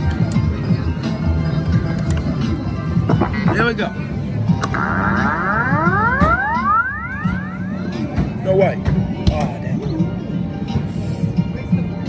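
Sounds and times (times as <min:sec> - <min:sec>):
low arcade din: 0:04.6 - 0:08.4
arcade machine rising electronic sweeps: 0:04.8 - 0:08.0.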